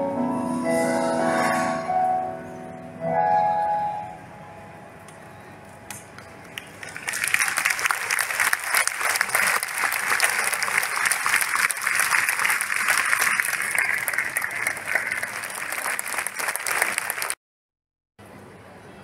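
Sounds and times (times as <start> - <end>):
audience applauding: 6.2 - 17.4.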